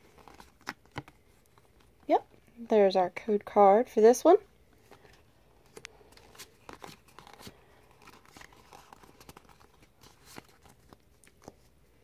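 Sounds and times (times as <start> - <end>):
trading cards rustling and clicking: 0.0 - 2.5, 4.7 - 11.8.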